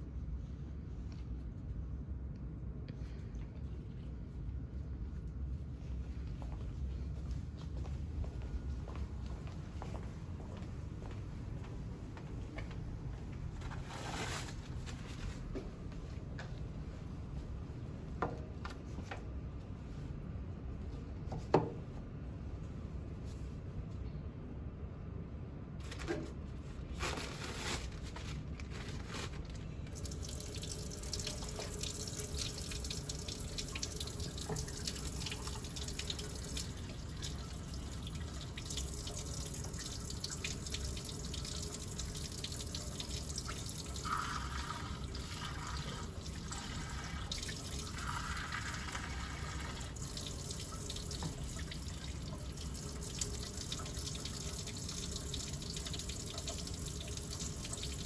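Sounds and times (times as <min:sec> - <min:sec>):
tap water running into sink: 0:30.0 - 0:58.0.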